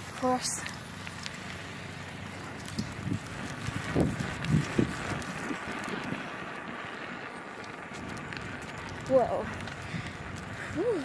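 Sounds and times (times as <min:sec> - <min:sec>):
wind on microphone: 0:02.7 - 0:06.9, 0:07.9 - 0:11.0.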